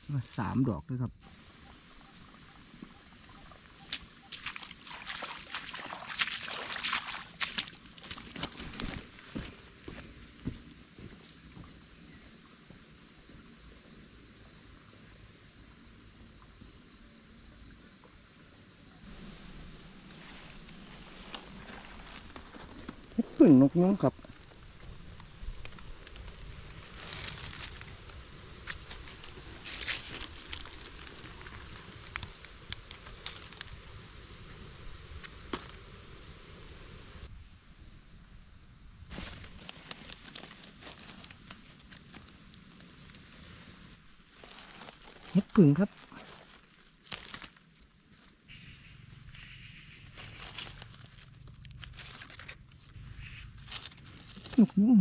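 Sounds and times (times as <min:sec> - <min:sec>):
insect high-pitched trill: 0:00.0 - 0:55.0
leaves and twigs rustling: 0:01.3 - 0:11.2, 0:19.0 - 0:37.3, 0:39.1 - 0:55.0.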